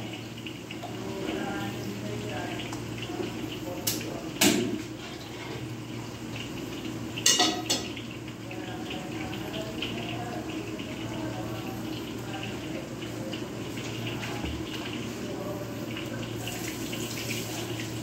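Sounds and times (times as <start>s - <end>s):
kitchenware clinking: 7.2s - 8.0s.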